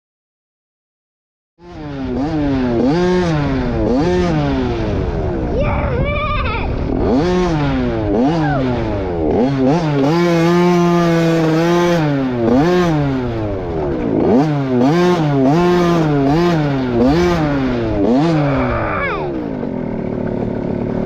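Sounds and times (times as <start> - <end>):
dirt bike engine revving: 1.6 - 21.0.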